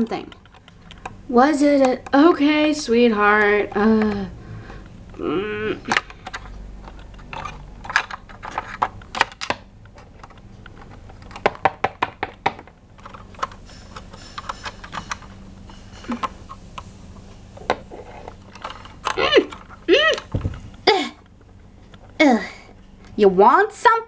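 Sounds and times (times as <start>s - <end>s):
plastic toys clicking and tapping: 5.8s - 15.3s.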